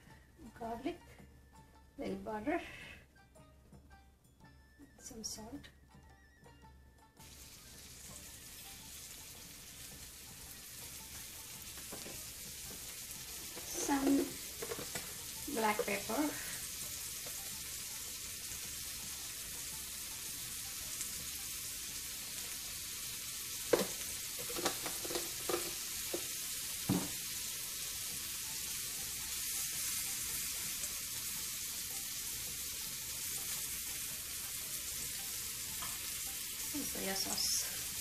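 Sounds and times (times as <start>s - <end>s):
scallops sizzling in butter: 7.1s - 38.0s.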